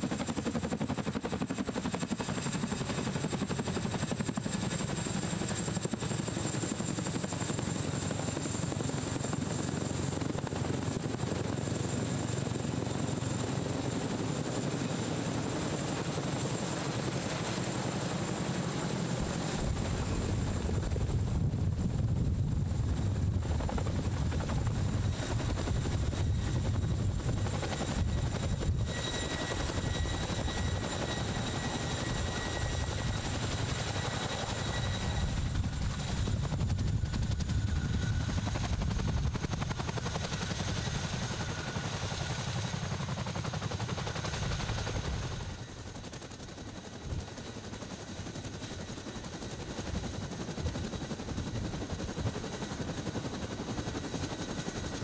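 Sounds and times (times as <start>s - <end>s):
helicopter rotors beating: 0.0s - 55.0s.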